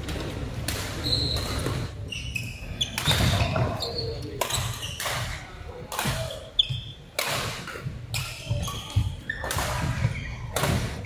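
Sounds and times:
shoe squeak on court floor: 1.0 - 5.4, 6.3 - 7.0, 8.2 - 10.5
rackets striking shuttlecock: 4.4 - 11.0.

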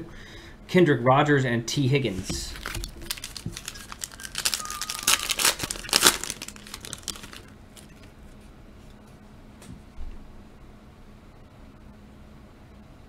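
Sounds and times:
foil wrapper tearing and crinkling: 2.5 - 7.9.

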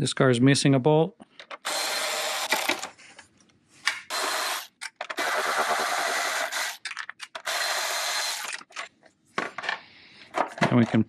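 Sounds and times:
electric ratchet bursts: 1.6 - 2.9, 4.1 - 8.6.

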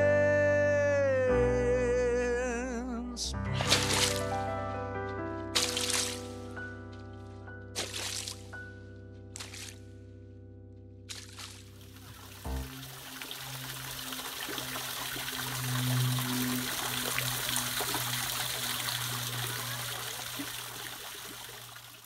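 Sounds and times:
boots splashing through puddles: 3.5 - 4.5, 5.4 - 7.0, 7.8 - 8.6, 9.4 - 9.9, 11.1 - 22.0
low steady hum: 12.0 - 22.0.

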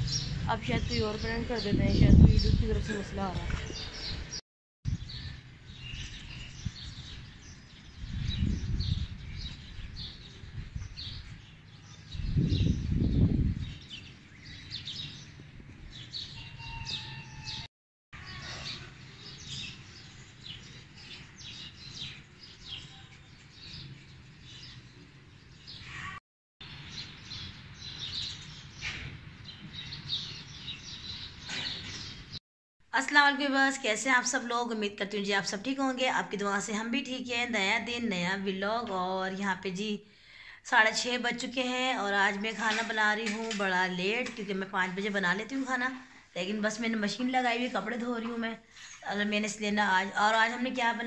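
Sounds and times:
wind rumbling on microphone: 0.0 - 17.0
small birds chirping: 0.0 - 32.4.

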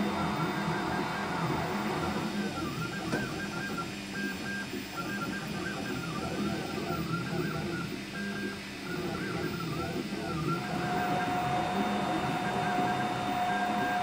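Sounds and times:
stepper motors whining: 9.0 - 14.0.

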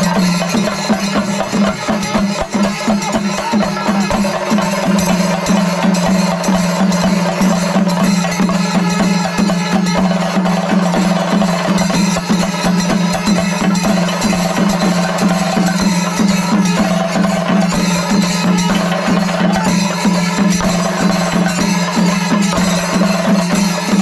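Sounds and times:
rapid drumbeats: 0.0 - 24.0
steady ringing tone: 0.0 - 24.0.

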